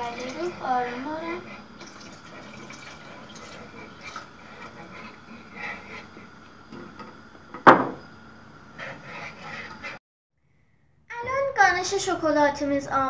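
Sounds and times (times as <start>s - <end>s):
whisk scraping metal pot: 0.0s - 7.0s, 8.7s - 10.0s.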